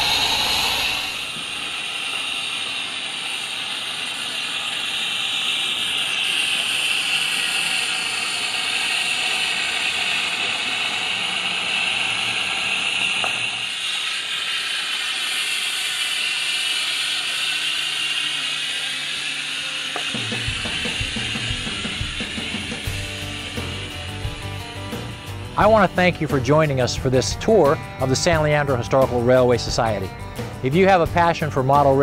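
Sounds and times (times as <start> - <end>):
wheels ratcheting on track: 0.0 - 25.9
model steam locomotive hiss: 0.0 - 32.0.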